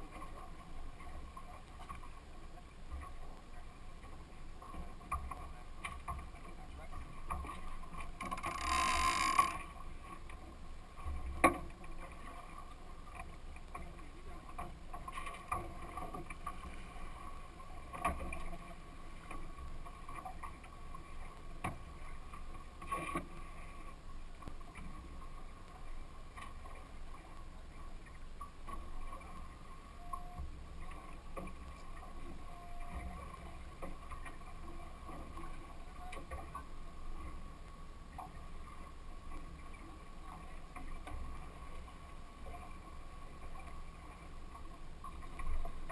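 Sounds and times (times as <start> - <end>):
water noise: 0.0 - 45.9
wind: 0.0 - 45.9
boat engine hum: 8.1 - 11.4.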